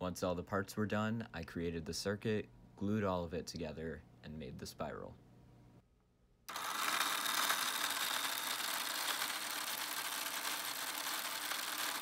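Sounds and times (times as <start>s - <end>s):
small electric motor whining: 6.5s - 12.0s.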